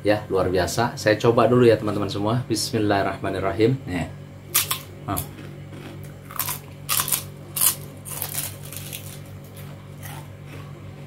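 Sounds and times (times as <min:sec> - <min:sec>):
chip crunching: 0:04.5 - 0:10.8.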